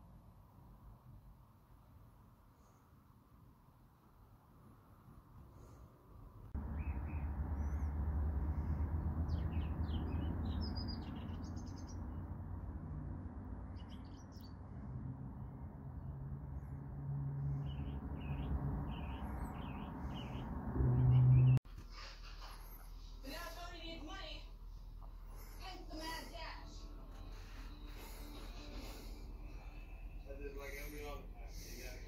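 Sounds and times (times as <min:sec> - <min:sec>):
small birds chirping: 0:06.5 - 0:12.6, 0:13.5 - 0:14.8, 0:17.4 - 0:21.6
low rushing noise: 0:06.5 - 0:21.6.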